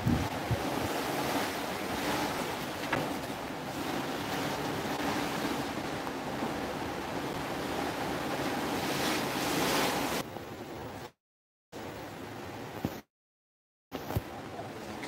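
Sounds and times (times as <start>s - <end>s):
wind on microphone: 0.0s - 10.2s
rush of open sea: 0.0s - 11.2s.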